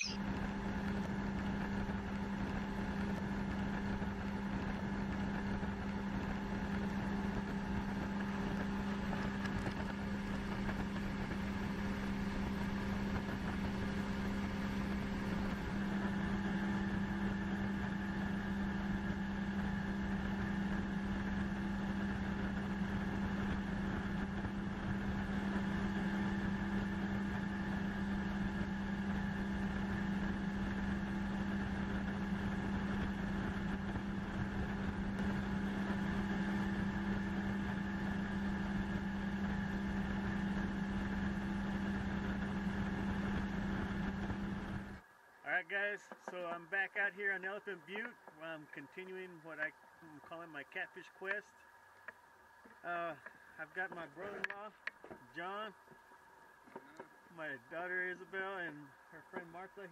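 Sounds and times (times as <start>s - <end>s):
boat motor running: 0.0s - 45.1s, 47.4s - 59.9s.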